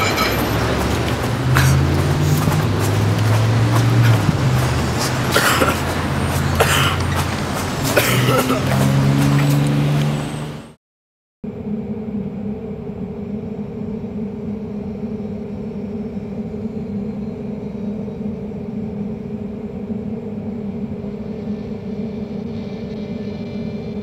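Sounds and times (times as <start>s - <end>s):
low droning rumble: 0.0s - 10.3s.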